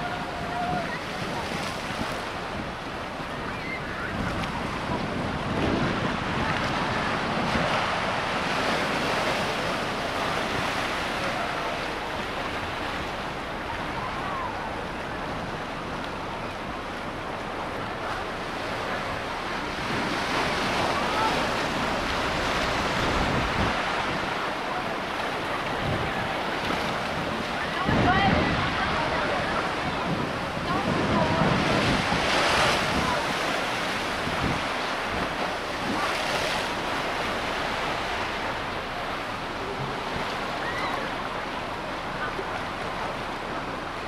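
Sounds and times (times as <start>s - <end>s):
ocean waves washing on beach: 0.0s - 44.0s.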